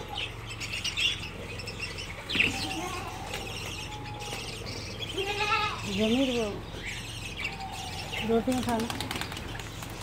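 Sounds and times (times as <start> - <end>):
pigeons flapping wings: 8.4 - 10.0.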